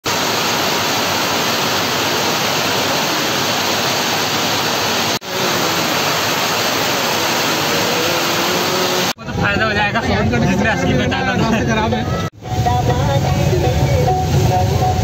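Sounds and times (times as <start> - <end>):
heavy rain falling: 0.0 - 9.2.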